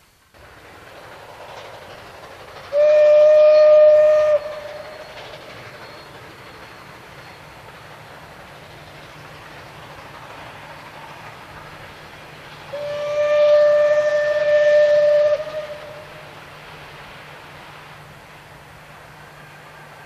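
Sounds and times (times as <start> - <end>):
steam train running: 0.0 - 20.0
steam locomotive whistle: 2.7 - 6.7, 12.7 - 16.4.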